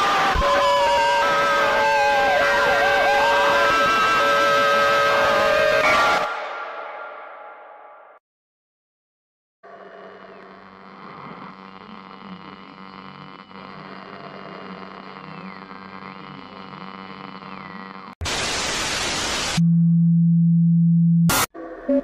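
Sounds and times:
eerie layered drone: 0.0 - 7.2
static hiss burst: 15.0 - 19.6.

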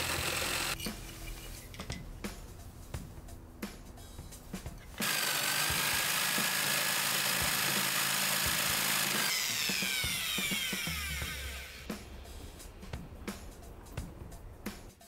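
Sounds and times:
power tool motor whining: 0.0 - 0.8, 5.0 - 11.9.

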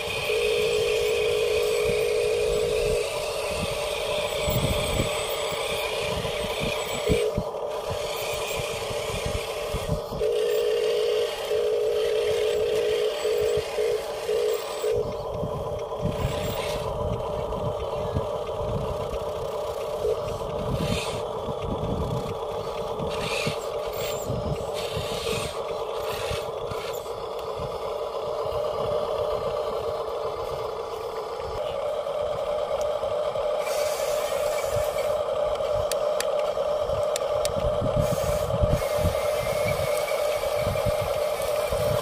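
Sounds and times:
small electric motors whining: 0.0 - 42.0
toy tracks scraping in sand: 0.0 - 42.0.

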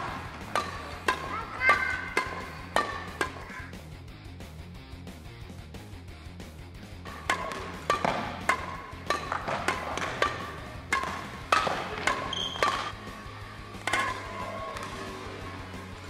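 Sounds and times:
rackets striking a shuttlecock: 0.0 - 3.8, 7.1 - 16.0
background music: 0.0 - 16.0.

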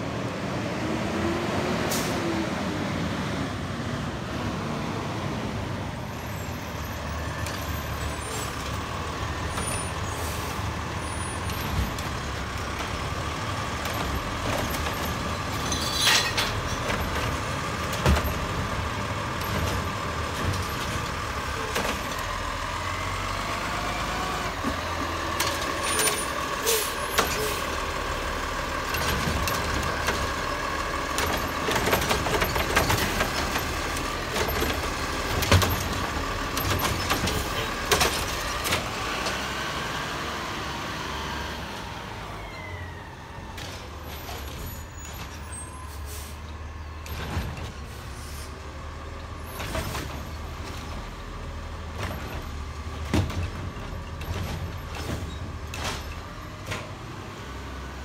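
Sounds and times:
garbage truck engine revving: 6.8 - 45.5
cart banging against hopper: 31.1 - 39.4, 51.9 - 57.1.

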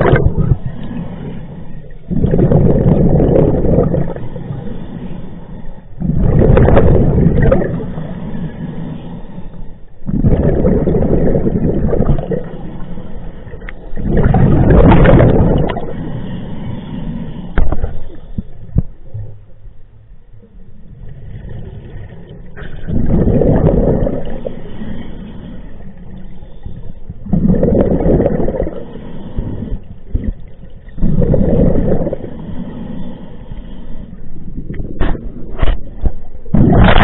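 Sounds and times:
diver bubbling exhalations: 0.0 - 0.7, 2.1 - 4.3, 6.0 - 8.0, 10.1 - 12.6, 14.0 - 16.0, 21.2 - 24.5, 27.2 - 28.9, 31.0 - 32.4.

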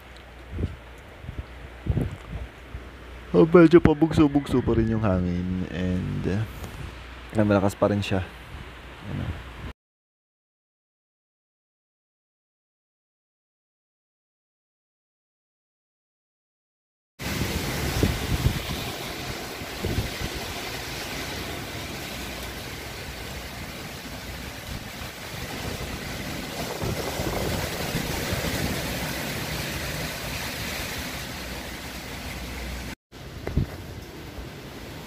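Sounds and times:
wind buffeting the microphone: 0.0 - 3.0, 6.0 - 7.2, 8.4 - 9.7, 17.2 - 31.5, 33.2 - 34.4
gusty wind: 0.0 - 9.8, 17.2 - 35.0
rain falling: 17.2 - 35.0.

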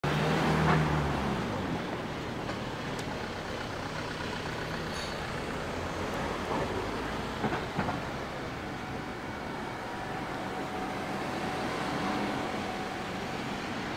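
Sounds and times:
traffic noise: 0.0 - 13.9.

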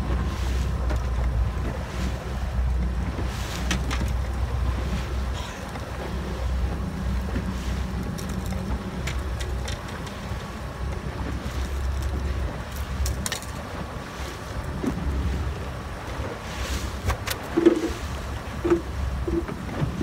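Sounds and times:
boat engine running: 0.0 - 20.0
water washing past hull: 0.0 - 20.0
sharp clicks from handling fish: 2.8 - 4.4, 7.3 - 10.2, 11.6 - 13.7, 17.0 - 18.0.

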